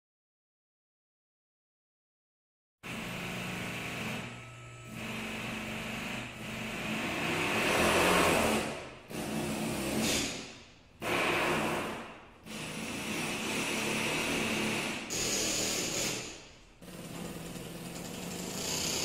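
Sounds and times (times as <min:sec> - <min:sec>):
small engine running: 0:12.6 - 0:19.0.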